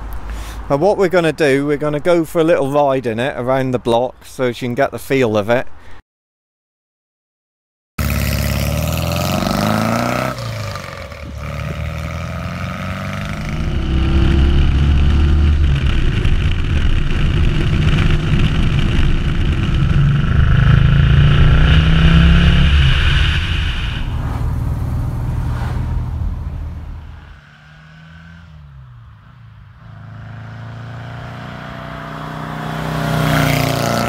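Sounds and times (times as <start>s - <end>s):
car engine revving on the road: 8.0s - 34.0s.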